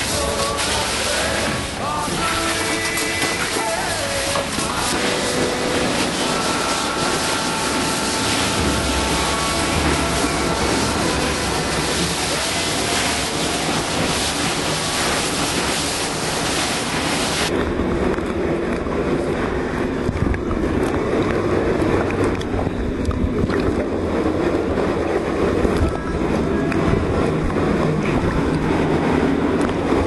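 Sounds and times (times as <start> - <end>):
rushing water in cave: 0.0 - 17.8.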